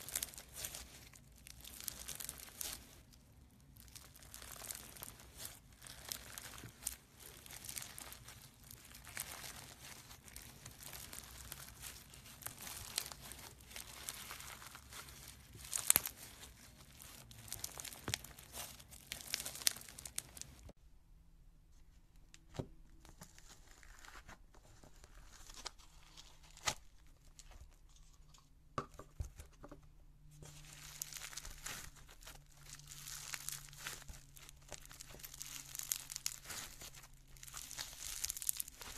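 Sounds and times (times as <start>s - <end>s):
slime crackling and popping: 0.0s - 20.8s, 30.4s - 38.9s.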